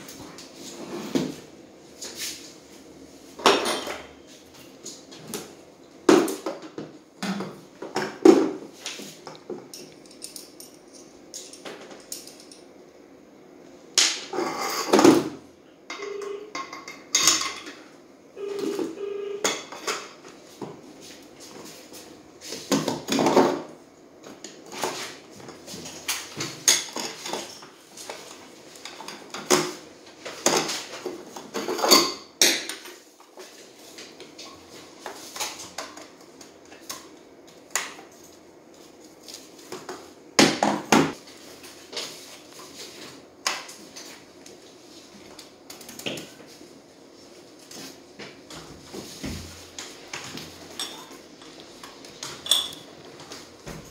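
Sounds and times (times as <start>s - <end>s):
hand tools and parts clinking: 9.7s - 12.7s, 52.2s - 52.9s.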